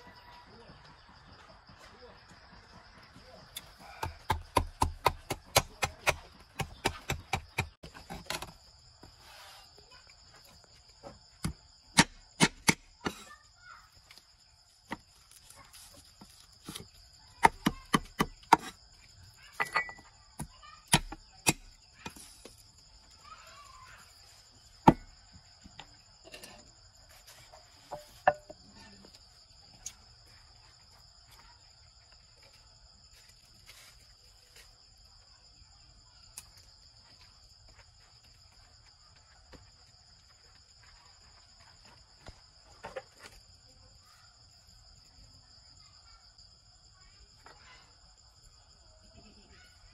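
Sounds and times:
high insect trill: 0:00.0 - 0:49.9
cleaver chopping on wooden block: 0:03.9 - 0:08.4, 0:11.4 - 0:12.9, 0:17.4 - 0:18.8.

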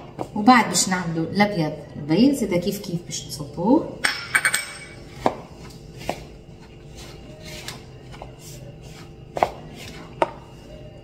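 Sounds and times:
spatula stirring dough in bowl: 0:05.2 - 0:11.0.

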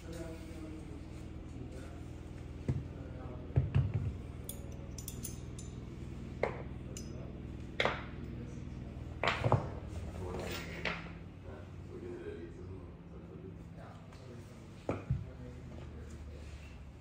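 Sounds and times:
low steady hum: 0:00.0 - 0:17.0
metallic clinks and knocks: 0:04.4 - 0:06.0, 0:06.9 - 0:07.3
light high metallic pings: 0:06.9 - 0:07.4.

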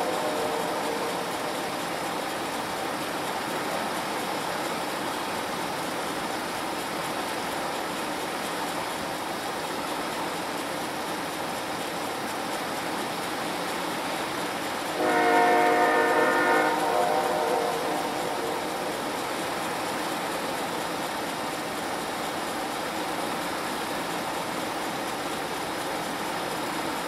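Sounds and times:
locomotive air horn: 0:00.0 - 0:01.8, 0:15.0 - 0:19.0
diesel locomotive rumbling: 0:00.0 - 0:27.0.

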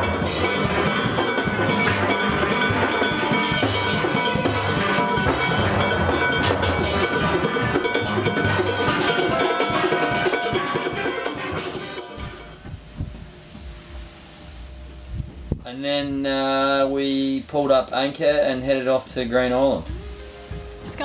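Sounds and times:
steel pan band playing: 0:00.0 - 0:12.8, 0:19.4 - 0:21.0.

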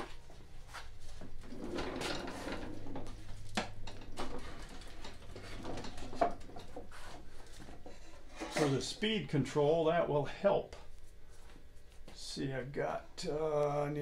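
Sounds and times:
low steady hum: 0:00.0 - 0:14.0
metal frame rubbing and knocking: 0:01.0 - 0:09.2.

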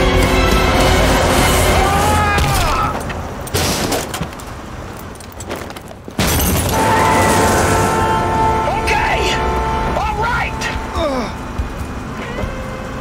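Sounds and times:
action film music: 0:00.0 - 0:03.4, 0:06.7 - 0:13.0
crash and windshield shattering: 0:00.2 - 0:08.1.

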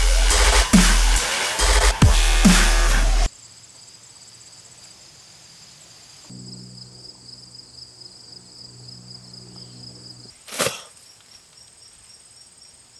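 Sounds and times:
crickets chirping: 0:03.3 - 0:12.9
low steady drone: 0:06.3 - 0:10.3.

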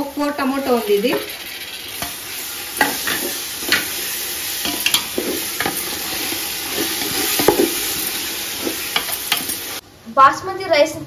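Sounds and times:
tomatoes sizzling in hot oil: 0:00.0 - 0:09.8
wooden spoon scraping metal pot: 0:02.8 - 0:09.7.

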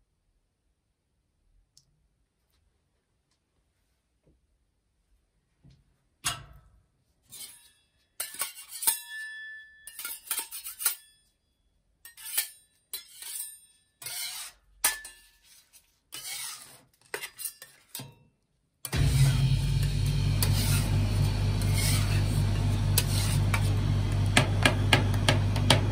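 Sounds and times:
metal spatulas clinking on steel: 0:07.4 - 0:11.4, 0:12.1 - 0:15.4, 0:17.1 - 0:18.2.

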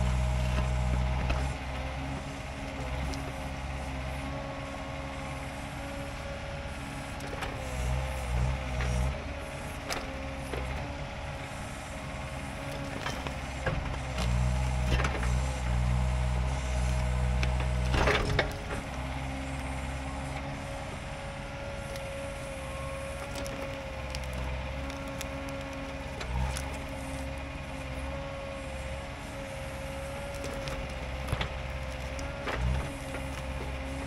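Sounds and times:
excavator diesel engine whining: 0:00.0 - 0:34.0
wood snapping: 0:09.8 - 0:10.8, 0:12.5 - 0:19.7, 0:21.6 - 0:34.0
woody crack: 0:21.8 - 0:28.2, 0:29.9 - 0:34.0.

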